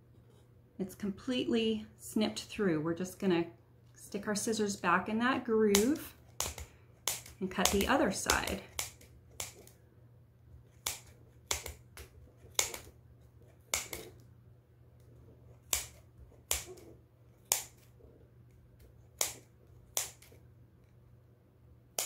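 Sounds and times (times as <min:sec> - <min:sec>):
shears snipping through yarn: 0:05.5 - 0:09.8, 0:10.6 - 0:14.2, 0:15.0 - 0:18.0, 0:18.8 - 0:20.4.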